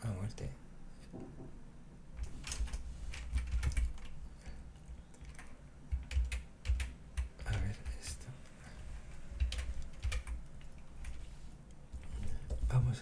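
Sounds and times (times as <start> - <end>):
computer keyboard keys clicking: 2.2 - 4.2, 4.8 - 8.1, 9.4 - 11.2.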